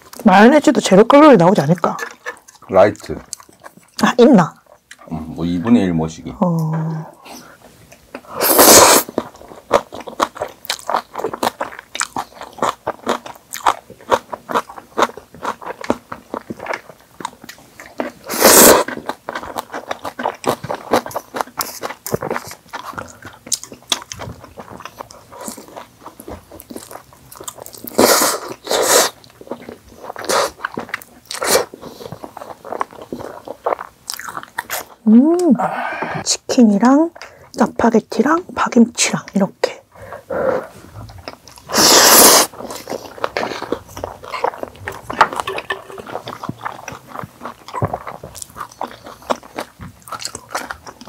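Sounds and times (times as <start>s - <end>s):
chewing and biting: 1.6s - 5.2s, 7.9s - 35.0s, 41.0s - 51.0s
loud slurps: 8.4s - 9.2s, 18.3s - 18.9s, 41.7s - 42.8s.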